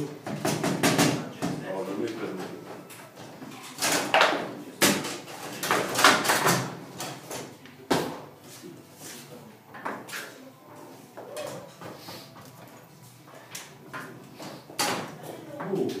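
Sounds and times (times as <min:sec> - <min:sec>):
table football knocks and clatters: 0:00.2 - 0:01.6.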